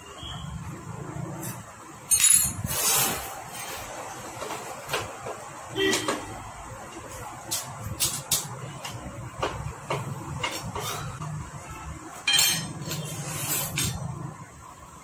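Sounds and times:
hand tools clinking and scraping: 1.4 - 4.7, 12.2 - 14.1.

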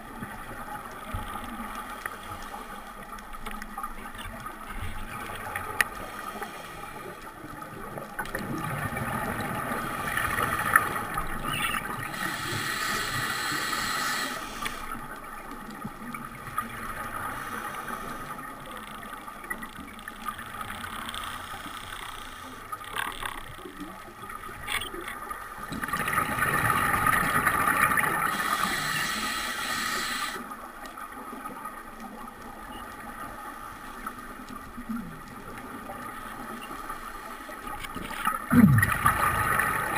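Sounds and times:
faint clicks: 0.2 - 8.5, 10.2 - 16.7, 17.6 - 26.1
scuba regulator hiss: 12.1 - 14.9, 28.2 - 30.4
bubbling exhales underwater: 38.4 - 39.9.

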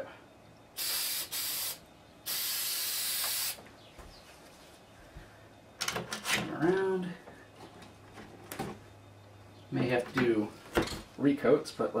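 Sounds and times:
spray paint can hissing: 0.8 - 3.6.

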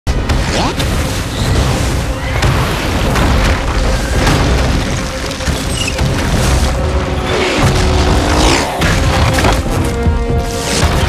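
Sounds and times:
debris booms and crashes: 0.1 - 11.0
film score music: 0.1 - 11.0.

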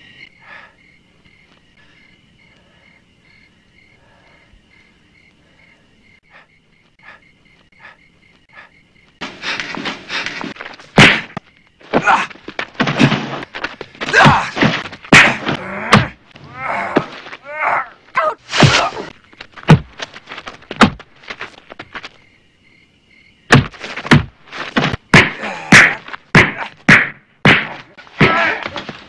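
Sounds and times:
punches and kicks landing: 9.3 - 17.4, 18.5 - 21.4, 23.5 - 29.0
grunts and groans: 11.8 - 13.2, 14.0 - 19.2, 25.2 - 26.8, 28.1 - 29.0.

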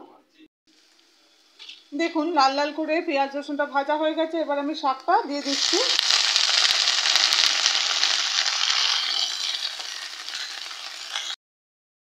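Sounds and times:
greens sizzling in hot oil: 0.7 - 2.7, 5.3 - 11.4.

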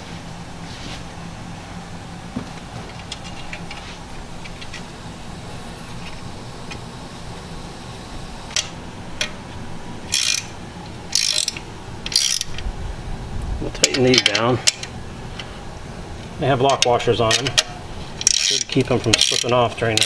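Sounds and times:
socket ratchet clicking: 10.1 - 10.5, 11.1 - 12.6.

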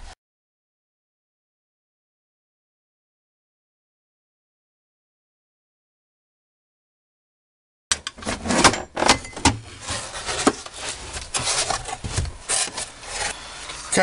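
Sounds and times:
plastic panels knocking and clicking: 7.9 - 9.7
plastic scraping on sheet metal: 7.9 - 14.0.

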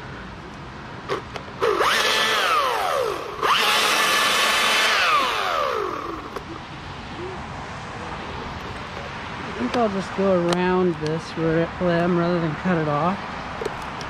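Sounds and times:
chainsaw revving: 1.6 - 6.4.

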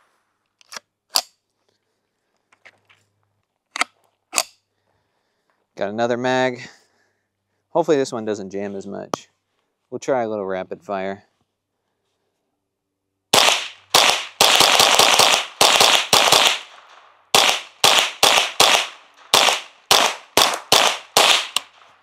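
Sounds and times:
rifle shots with echo: 13.3 - 22.0.

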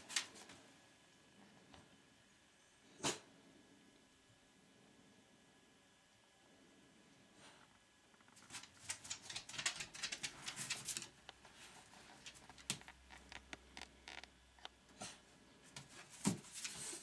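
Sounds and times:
dog claws clicking on wooden floor: 8.4 - 11.4, 12.1 - 14.7.

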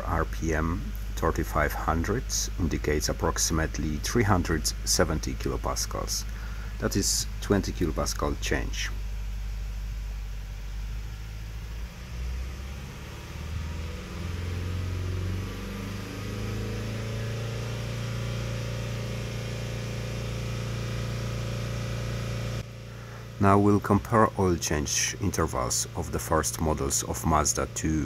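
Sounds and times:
diesel engine revving: 10.6 - 28.0.

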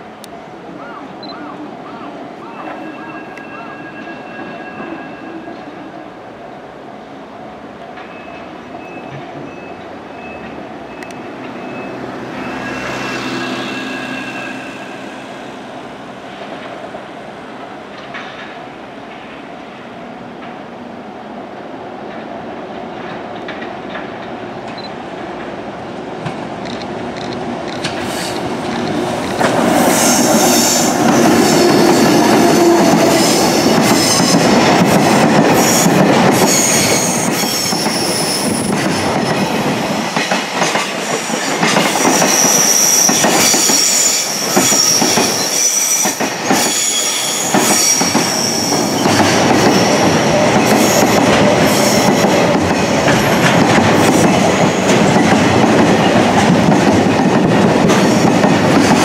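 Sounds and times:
freight train passing: 0.0 - 59.0
high-pitched wheel squeal: 8.2 - 15.3, 41.2 - 49.2
clattering train wheels: 17.9 - 19.4, 23.0 - 25.6, 26.2 - 59.0.

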